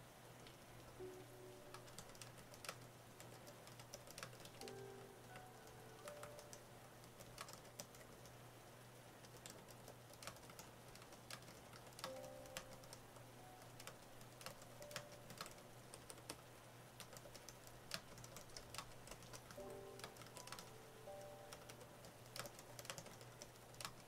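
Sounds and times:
faint piano notes: 0.0 - 8.3, 9.9 - 16.4, 17.3 - 24.0
keyboard key clicks: 9.3 - 13.0.

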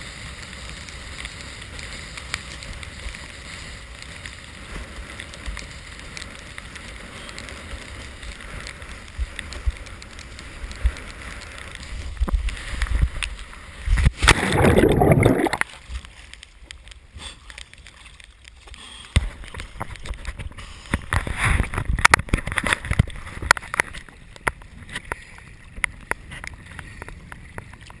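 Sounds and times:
wind and water rushing past: 10.6 - 16.1
water sloshing and splashing: 13.9 - 16.7
loud splash into water: 14.1 - 15.7.

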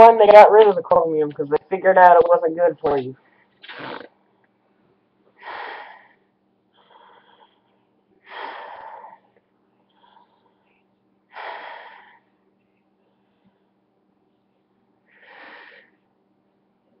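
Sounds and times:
breathing through gas mask: 3.6 - 4.1, 5.4 - 6.2, 8.3 - 9.3, 11.3 - 12.2.

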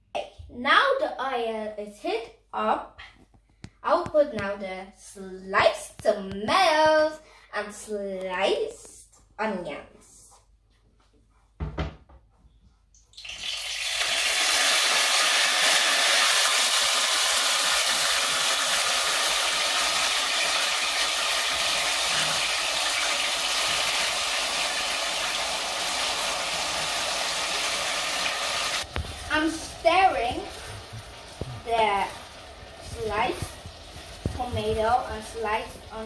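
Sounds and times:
vegetables sizzling in hot oil: 13.2 - 36.0.

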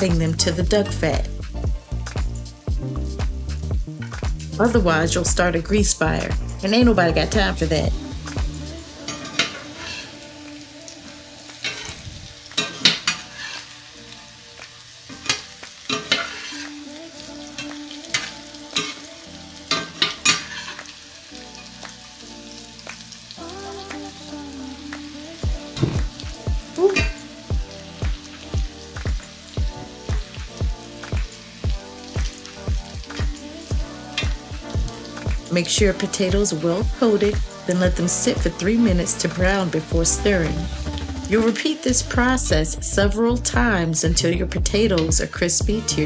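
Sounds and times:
potatoes sizzling in a skillet: 0.0 - 46.0
metal spatula scraping a pan: 9.0 - 10.2, 11.6 - 13.8, 15.2 - 16.8, 17.6 - 19.0, 19.7 - 20.9.

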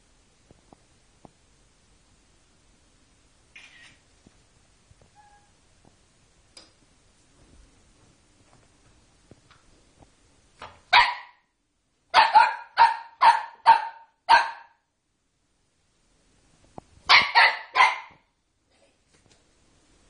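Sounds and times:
small dog yapping: 12.2 - 14.8, 17.1 - 18.2.

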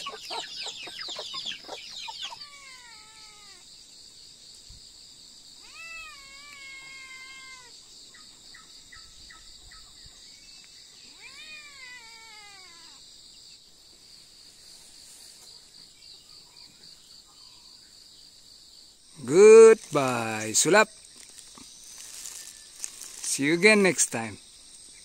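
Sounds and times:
cat meowing: 2.2 - 3.6, 5.6 - 7.7, 11.1 - 13.0.

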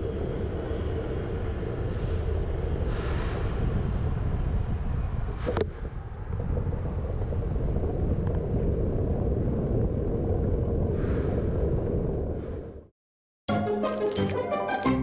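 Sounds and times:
road and street noise: 0.0 - 6.3
wind rumble on microphone: 0.0 - 12.9.

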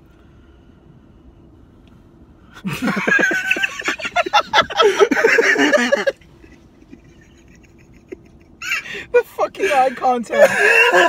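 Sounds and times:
people cackling with laughter: 2.6 - 8.8.

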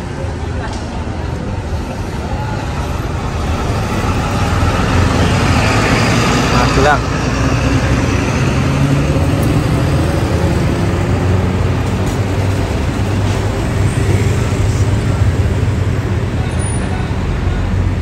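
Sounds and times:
diesel bus engines: 0.0 - 18.0
street traffic: 0.0 - 18.0.

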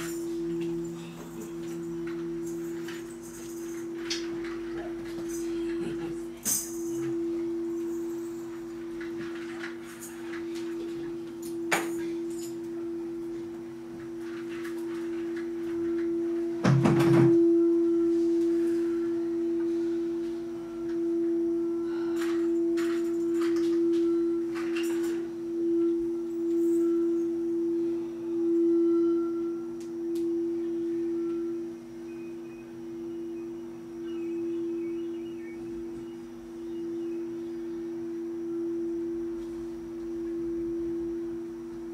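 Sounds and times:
singing bowl ringing: 0.0 - 41.9
thump: 16.6 - 17.4.

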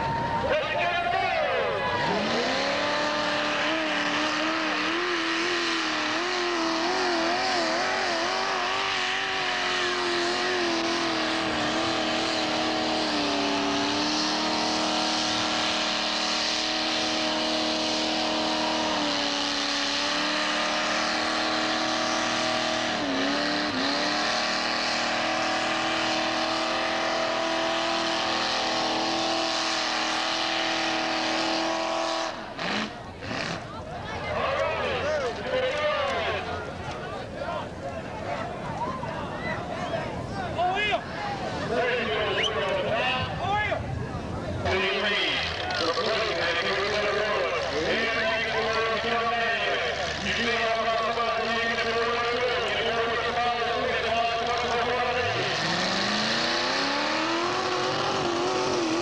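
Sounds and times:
engine at high revs: 1.9 - 33.9, 44.6 - 59.0.

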